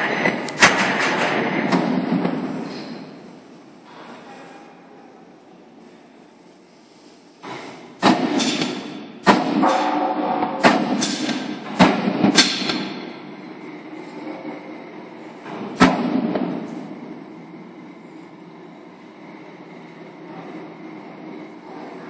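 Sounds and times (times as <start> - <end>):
loud bangs and knocks: 0.0 - 3.0, 7.4 - 13.3, 15.4 - 16.9
factory hum: 0.0 - 22.0.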